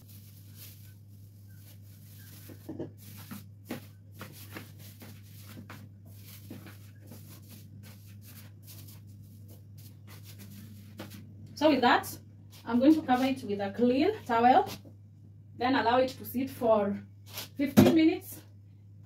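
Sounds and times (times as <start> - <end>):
plastic bag crinkling: 0.0 - 3.4
steady low hum: 0.0 - 19.0.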